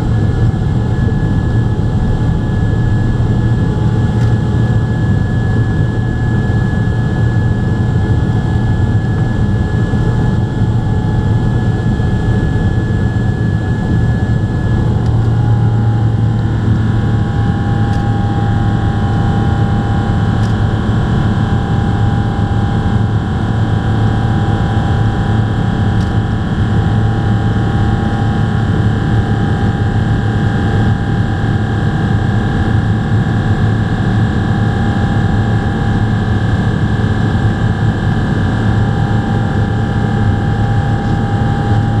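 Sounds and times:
jet engine whining tones: 0:00.0 - 0:28.2
jet engine roar: 0:00.0 - 0:42.0.

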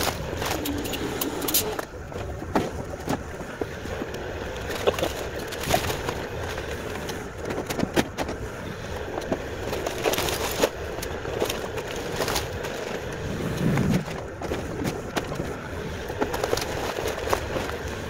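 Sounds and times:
diesel engine running: 0:00.0 - 0:18.0
wood splintering and clattering: 0:00.0 - 0:18.0.

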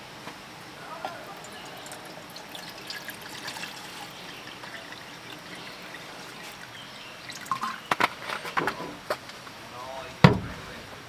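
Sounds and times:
water trickling: 0:00.9 - 0:08.6
light drips and ticks: 0:01.0 - 0:08.1.

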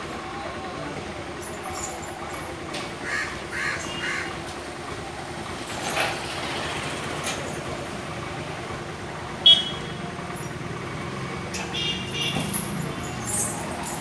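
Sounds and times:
passing vehicles hum: 0:00.0 - 0:14.0
vehicle horn toot: 0:09.4 - 0:10.0, 0:11.7 - 0:12.6.

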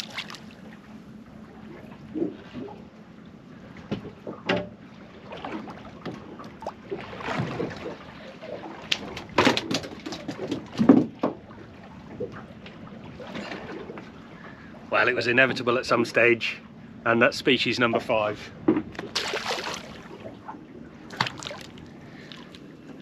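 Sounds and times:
knocks and scrapes on a boat: 0:03.8 - 0:14.1.

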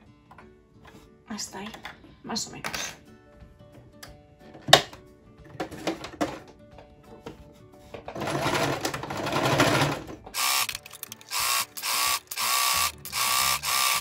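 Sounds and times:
electric sewing machine stitching: 0:08.1 - 0:14.0.

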